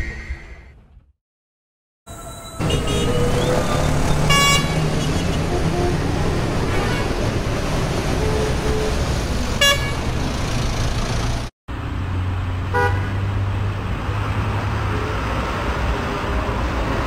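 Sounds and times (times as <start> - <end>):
street traffic rumble: 2.1 - 17.0
car horn toot: 2.4 - 3.5, 4.2 - 6.1, 9.6 - 10.0, 12.7 - 13.1.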